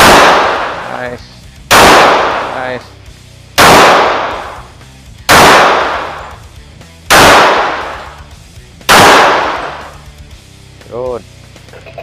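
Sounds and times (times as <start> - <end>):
pistol shots: 0.0 - 2.8, 3.6 - 4.7, 5.3 - 6.4, 7.1 - 8.2, 8.9 - 10.1.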